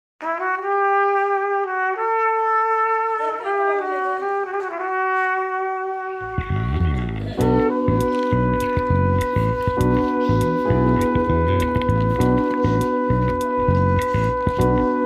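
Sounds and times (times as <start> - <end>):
melody of long held notes: 6.2 - 15.0
low beat: 6.3 - 15.0.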